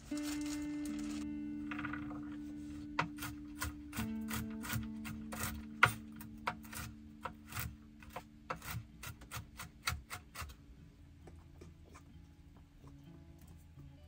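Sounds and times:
knife chopping on wooden board: 0:03.0 - 0:10.5.

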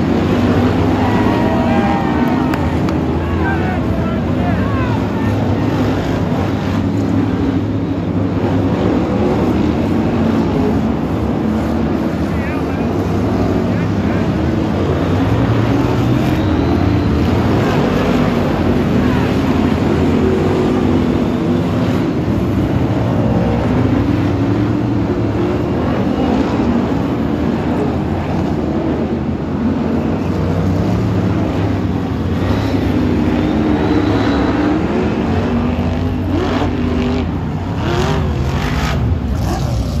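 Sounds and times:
racing car engines: 0:00.0 - 0:40.0.

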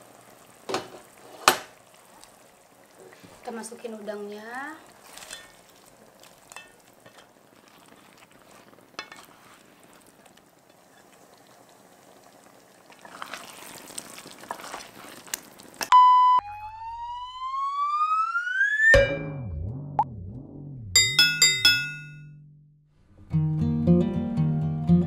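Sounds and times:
sauce bubbling in a wok: 0:00.0 - 0:15.9
short electronic beep: 0:15.9 - 0:17.3
rising whistle-like tone: 0:15.9 - 0:19.8.

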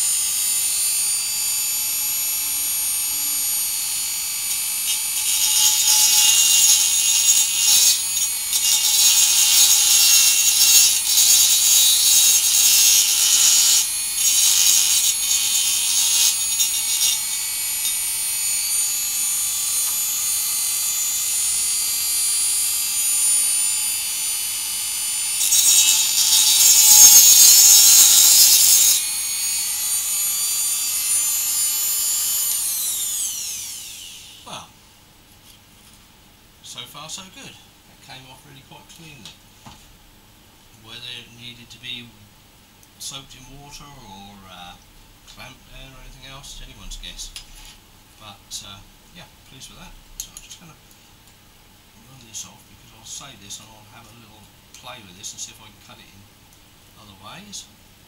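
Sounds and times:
rotary tool cutting glass: 0:00.0 - 0:34.5.

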